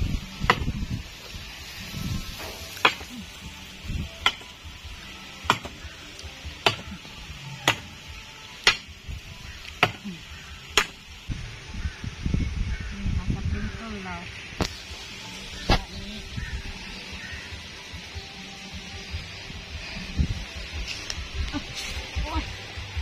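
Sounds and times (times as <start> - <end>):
machete chopping wood: 0.5 - 0.7, 2.8 - 3.2, 4.2 - 4.5, 5.5 - 5.8, 6.6 - 6.9, 7.6 - 7.9, 8.6 - 8.9, 9.8 - 10.1, 10.8 - 11.0.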